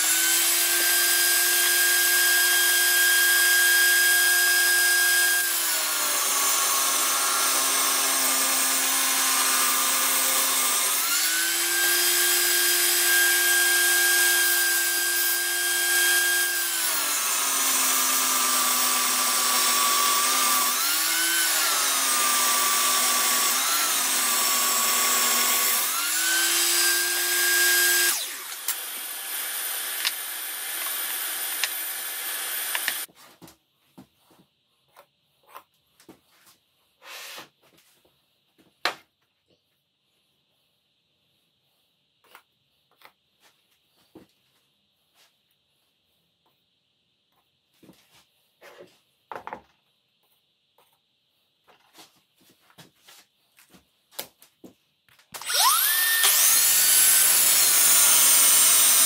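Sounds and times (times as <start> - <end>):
table saw ripping wood: 0.0 - 33.1, 55.3 - 59.0.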